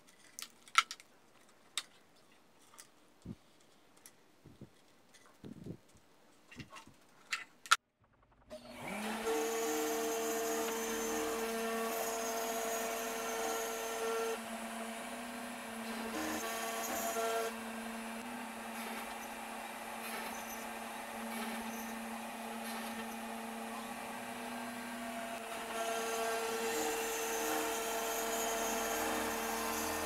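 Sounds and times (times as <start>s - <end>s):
router cutting plywood: 8.6s - 30.0s
router motor hum: 8.6s - 30.0s.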